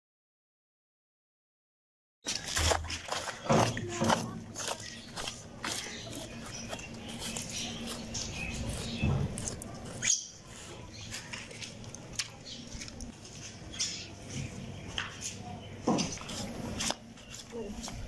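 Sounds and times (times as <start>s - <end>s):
knife slicing and scraping hide: 2.3s - 10.2s.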